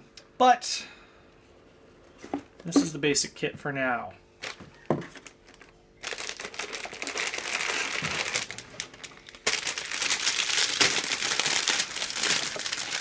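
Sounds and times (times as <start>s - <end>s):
plastic bags crinkling: 4.4s - 13.0s.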